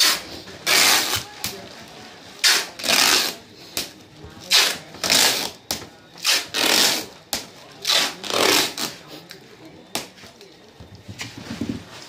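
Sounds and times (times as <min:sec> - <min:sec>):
adhesive tape pulled off roll: 0:00.0 - 0:01.6, 0:07.8 - 0:09.0.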